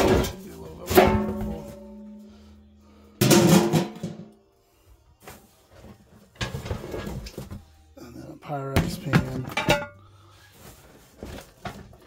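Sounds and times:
glass dishes knocking together: 9.2 - 10.0.

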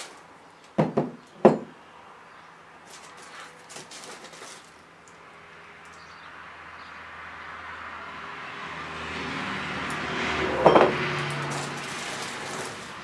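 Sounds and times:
road vehicle passing: 4.7 - 13.0.

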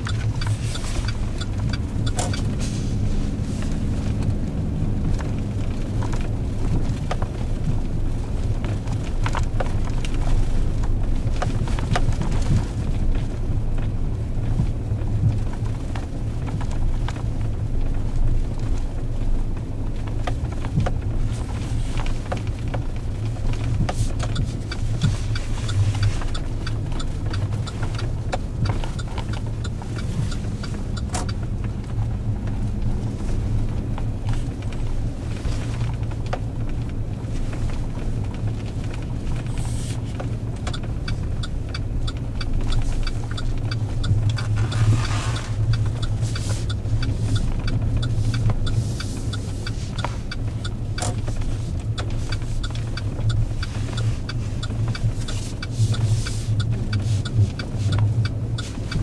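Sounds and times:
engine and tyres rumbling: 0.0 - 59.0.

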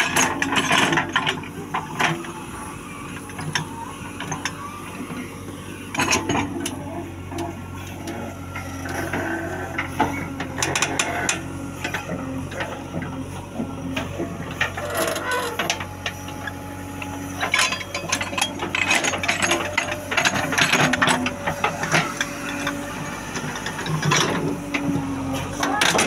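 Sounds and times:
diesel engine running: 0.0 - 26.0
metallic clatter and rattling: 17.4 - 22.1.

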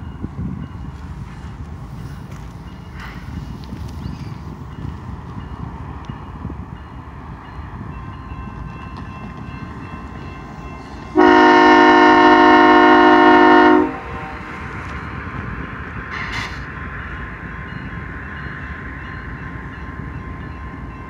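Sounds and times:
locomotive air horn blast: 11.1 - 14.7.

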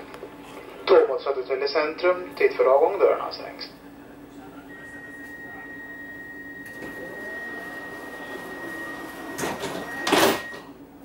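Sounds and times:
high warning tone: 4.7 - 10.7.

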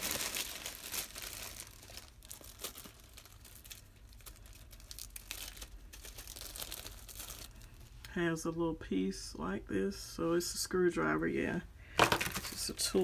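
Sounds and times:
plastic bag crinkling: 0.0 - 8.0, 12.0 - 13.0.

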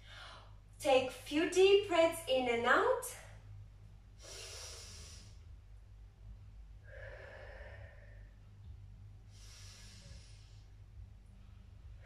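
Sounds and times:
woman breathing deeply: 0.0 - 0.7, 4.1 - 5.6, 6.7 - 12.0
low steady hum: 0.0 - 12.0.

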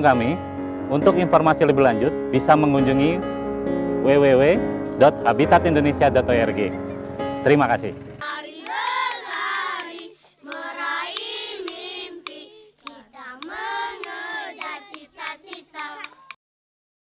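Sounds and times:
children singing: 8.2 - 16.4.

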